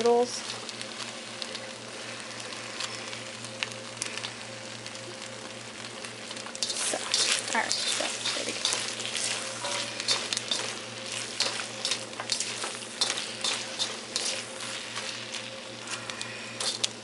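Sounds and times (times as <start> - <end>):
noodles sizzling in a wok: 0.0 - 17.0
spatula scraping a pan: 6.6 - 17.0.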